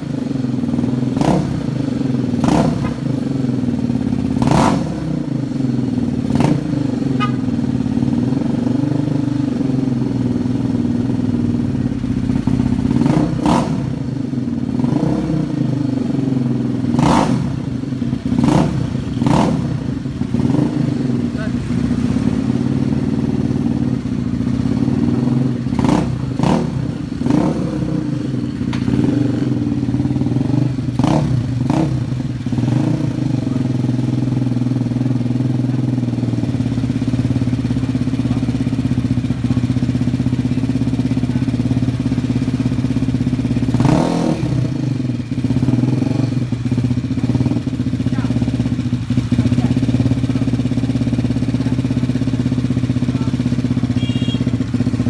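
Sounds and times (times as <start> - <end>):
scooter engine idling: 0.0 - 55.0.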